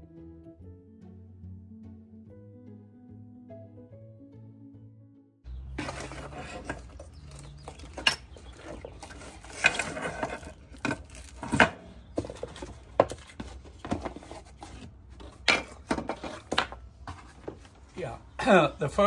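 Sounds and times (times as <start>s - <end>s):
parts clattering on metal table: 5.7s - 17.6s
packaging rustling: 5.8s - 11.6s.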